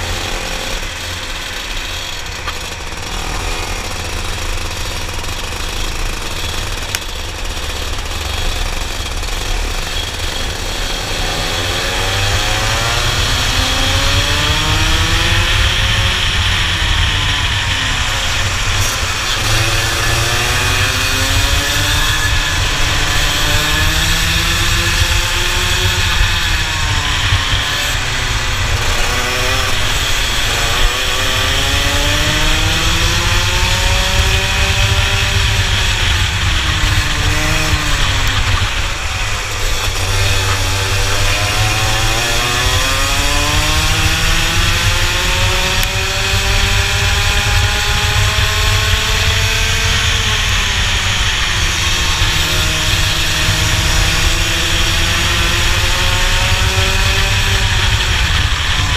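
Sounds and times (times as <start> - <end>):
kart engine racing: 0.0 - 58.9
wind rumbling on microphone: 12.0 - 58.9.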